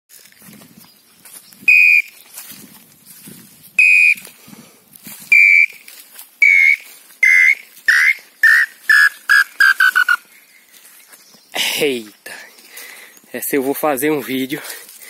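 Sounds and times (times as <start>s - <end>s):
bird whistled notes: 1.6s - 2.2s, 3.8s - 4.2s, 5.3s - 5.8s, 6.4s - 10.2s.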